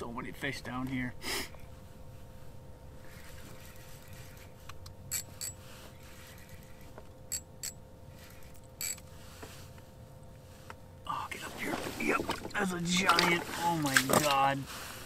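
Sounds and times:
fishing reel gears ticking: 0:05.1 - 0:09.0.

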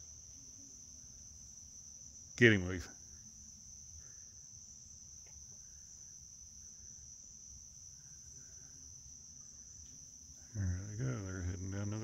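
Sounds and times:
crickets chirring: 0:00.0 - 0:12.0.

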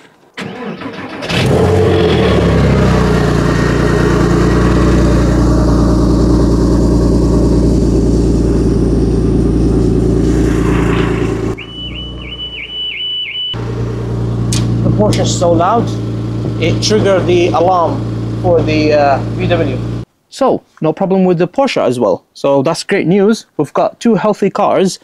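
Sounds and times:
car engine starting and running: 0:00.4 - 0:20.1
car alarm pulsing beeps: 0:11.6 - 0:13.6.

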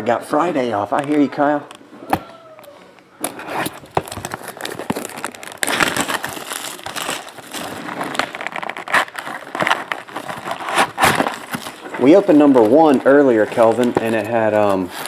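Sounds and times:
plastic shrink-wrap crinkling: 0:03.2 - 0:15.0.

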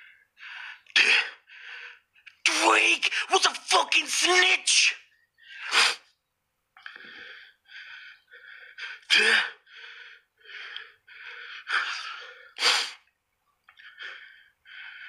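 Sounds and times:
man breathing sharply: 0:06.8 - 0:09.0, 0:09.6 - 0:13.0, 0:13.8 - 0:15.0.

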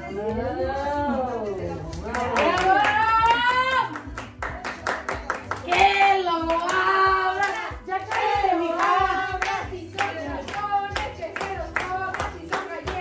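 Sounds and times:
hands clapping: 0:01.8 - 0:13.0
voices singing: 0:05.4 - 0:13.0.

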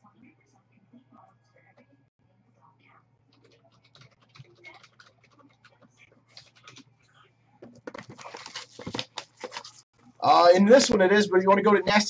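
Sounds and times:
typing on computer keyboard: 0:03.3 - 0:06.9.

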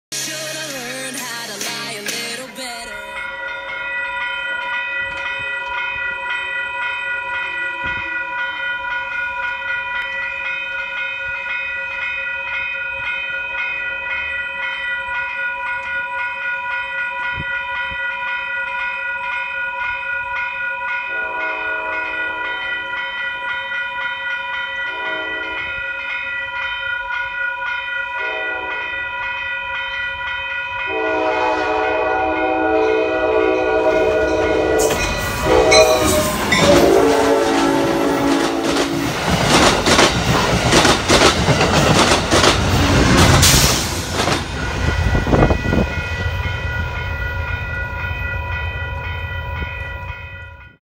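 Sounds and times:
crossing warning bell ringing: 0:00.2 - 0:50.8
locomotive air horn blasts: 0:21.1 - 0:22.6, 0:24.9 - 0:25.7, 0:28.2 - 0:28.9, 0:30.9 - 0:39.2
train rushing past: 0:30.8 - 0:50.5.

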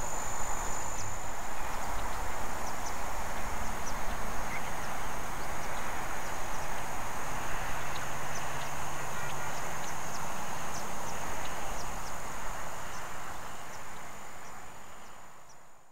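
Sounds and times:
broad hiss: 0:00.0 - 0:03.8
insect trill: 0:00.0 - 0:06.6.

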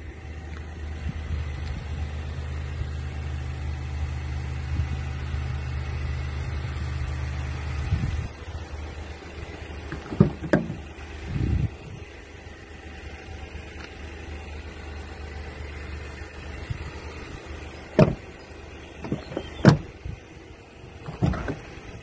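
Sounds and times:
low steady rumble: 0:00.0 - 0:22.0
car door clunks: 0:09.8 - 0:10.9, 0:17.8 - 0:20.0, 0:21.0 - 0:22.0.

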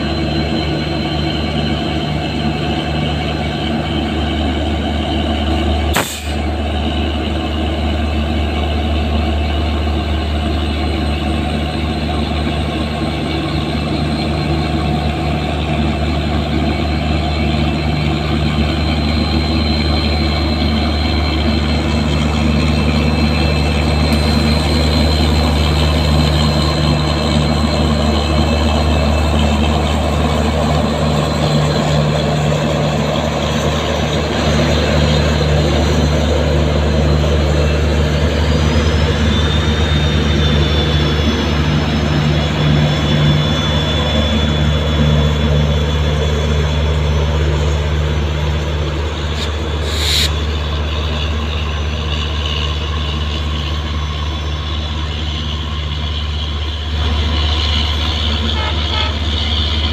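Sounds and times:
locomotive engine deep drone: 0:00.0 - 0:59.9
thin high whine: 0:49.1 - 0:50.6.

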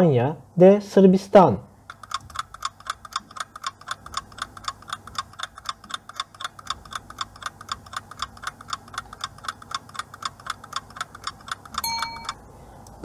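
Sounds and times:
rapid clock ticking: 0:01.8 - 0:12.4.

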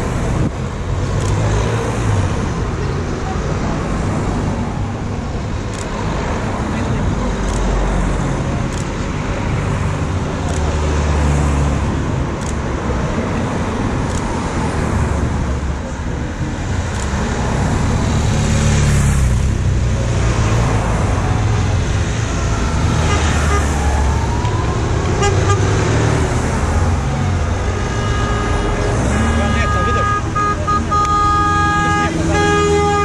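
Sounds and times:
vehicles driving past: 0:00.0 - 0:33.0
horn toots: 0:23.0 - 0:23.8, 0:25.0 - 0:26.3, 0:27.5 - 0:33.0.

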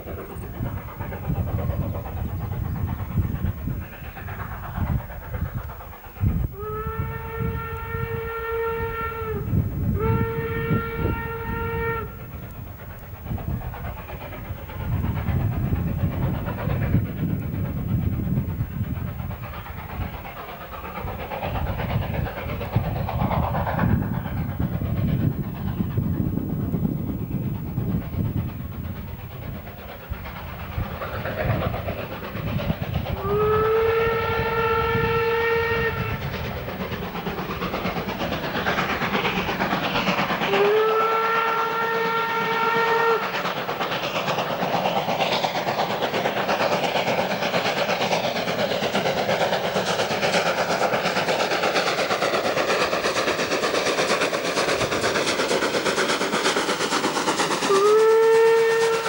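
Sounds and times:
steam locomotive working hard: 0:00.0 - 0:59.0
steam whistle blasts: 0:06.5 - 0:12.2, 0:33.2 - 0:36.3, 0:40.5 - 0:43.4, 0:57.7 - 0:59.0.

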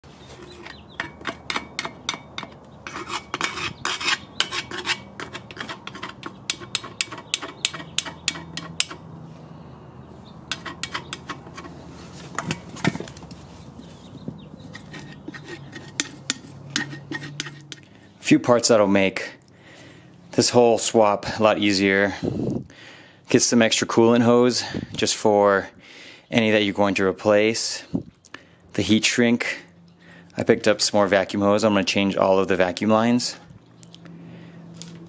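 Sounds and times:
screwdriver scraping metal: 0:00.2 - 0:09.0, 0:10.5 - 0:13.1, 0:14.6 - 0:17.9.

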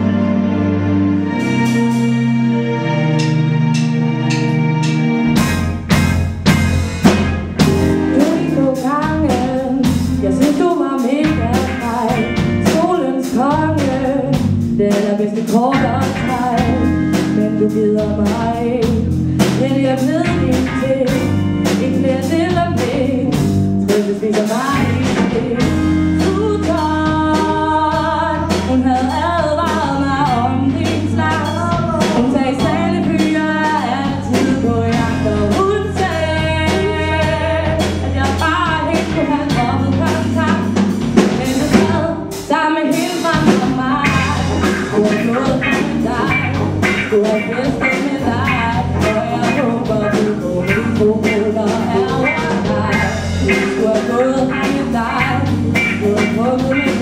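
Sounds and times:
guitar: 0:00.0 - 0:57.0
steady beat: 0:03.2 - 0:22.5, 0:43.5 - 0:57.0
person singing: 0:07.9 - 0:57.0.

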